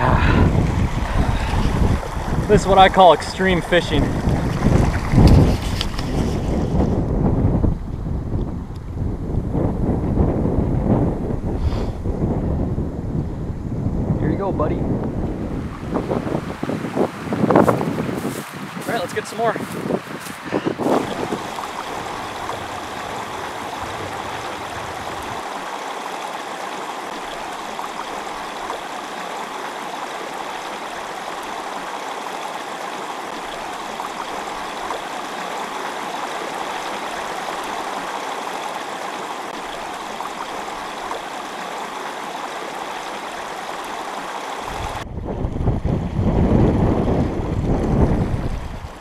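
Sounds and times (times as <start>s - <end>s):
stream rushing over rocks: 0.0s - 6.8s, 15.6s - 45.1s
wind rumbling on microphone: 0.0s - 26.0s, 43.0s - 49.0s.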